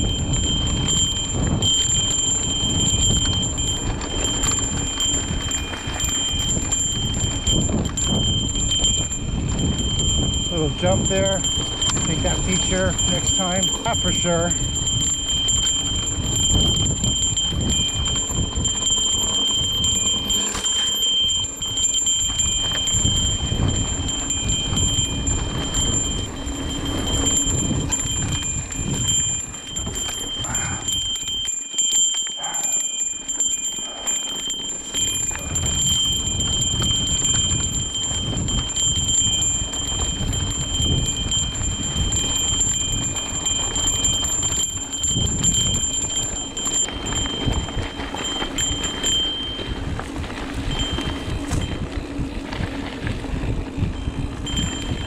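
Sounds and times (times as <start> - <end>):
wind on microphone: 0.0 - 31.4, 35.0 - 55.0
bicycle bell ringing: 0.0 - 55.0
tyres rumbling on dirt: 40.4 - 55.0.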